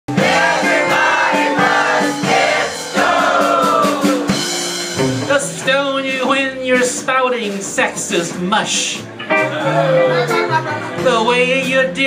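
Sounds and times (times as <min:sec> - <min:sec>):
voices singing together: 0:00.1 - 0:04.5
live band playing: 0:00.1 - 0:12.0.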